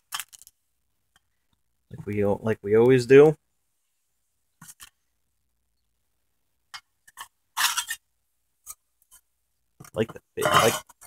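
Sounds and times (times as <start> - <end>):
rustles of items handled: 3.7 - 5.2.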